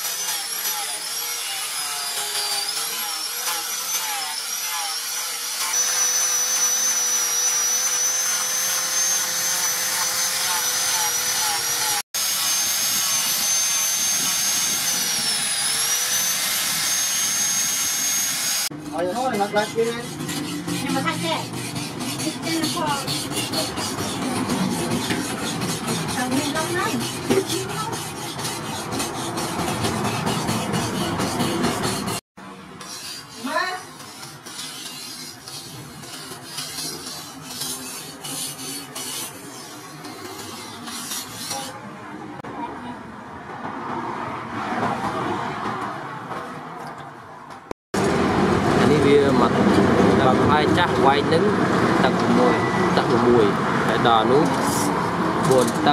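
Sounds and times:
angle grinder motor whine: 0.0 - 18.8
knife scraping on whetstone: 19.1 - 32.2, 32.8 - 41.8.

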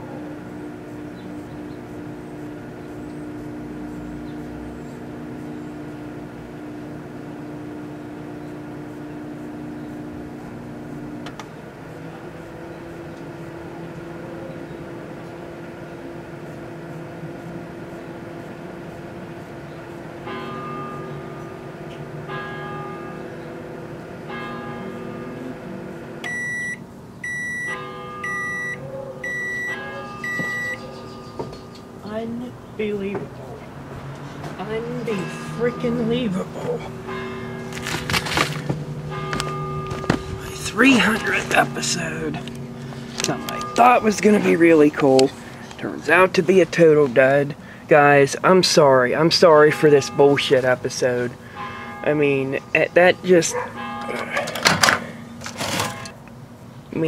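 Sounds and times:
microwave oven humming: 0.0 - 57.0
high microwave beeps: 24.7 - 31.9, 35.0 - 38.0, 38.8 - 46.3.

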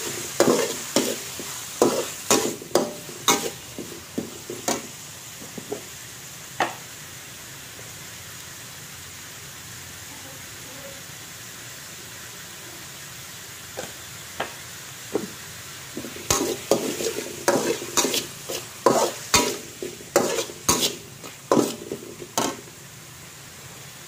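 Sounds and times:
spatula scraping against wok: 0.0 - 5.9, 15.2 - 22.8.

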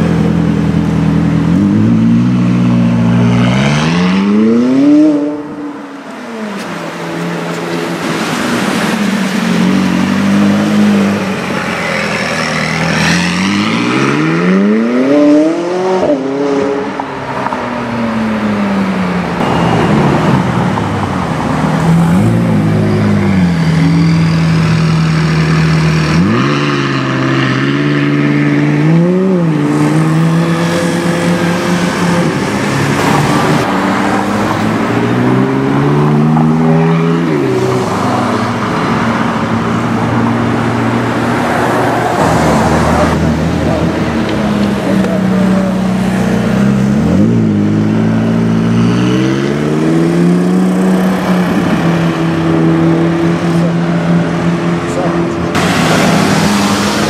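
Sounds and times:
sports car revving and accelerating: 0.0 - 57.0.

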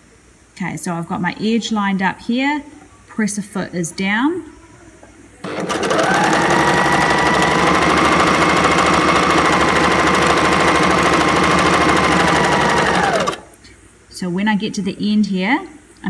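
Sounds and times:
overlocker whirring: 5.4 - 13.6
stitching mechanism chatter: 5.4 - 13.6.

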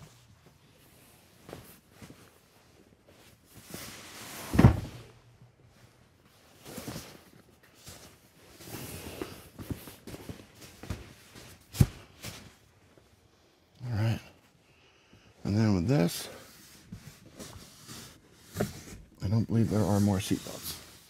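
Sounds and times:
cushions rustling: 0.0 - 13.3
loud thumps: 4.5 - 5.1.

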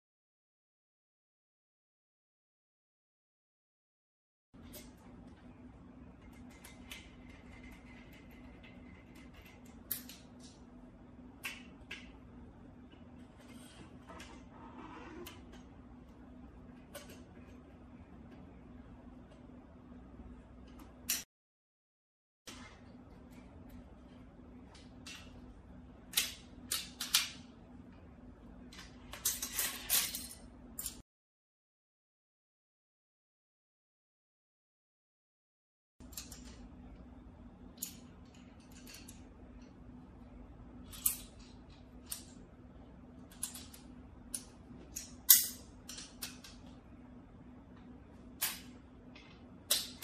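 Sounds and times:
low steady hum: 4.6 - 21.2, 22.5 - 31.0, 36.0 - 50.0
metal and plastic parts clacking: 43.2 - 46.7.

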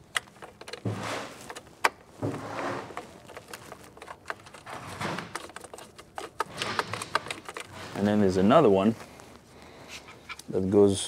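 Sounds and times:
tool scraping and rustling: 0.5 - 9.2.

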